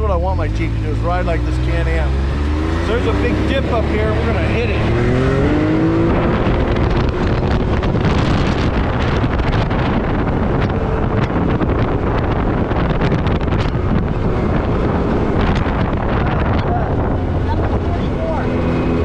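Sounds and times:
vehicle engine and tyre noise: 0:00.0 - 0:19.0
wind buffeting microphone: 0:00.0 - 0:19.0.

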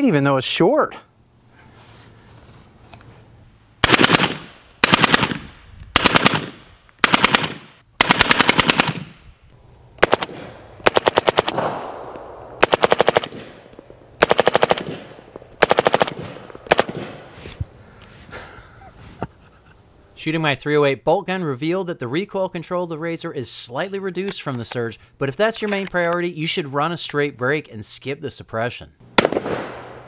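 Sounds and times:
suppressed rifle automatic bursts: 0:03.8 - 0:09.2, 0:10.0 - 0:17.4, 0:29.2 - 0:30.0.

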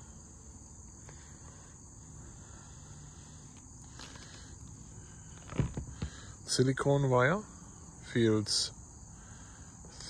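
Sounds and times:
high-pitched insect chorus: 0:00.0 - 0:10.0
low thumps of cables handled: 0:05.4 - 0:06.3.

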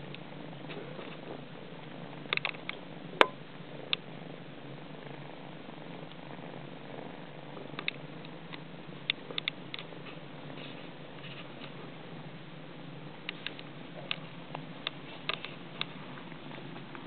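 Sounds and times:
cats purring: 0:00.0 - 0:17.0.

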